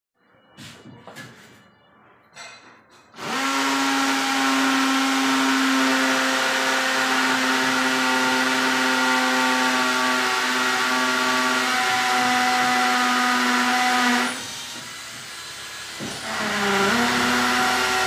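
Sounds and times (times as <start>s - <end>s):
angle grinder cutting concrete: 15.4s - 18.0s.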